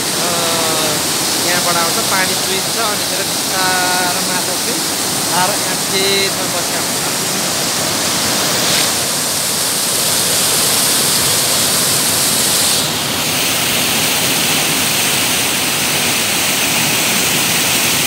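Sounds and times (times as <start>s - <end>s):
stream water rushing: 0.0s - 18.0s.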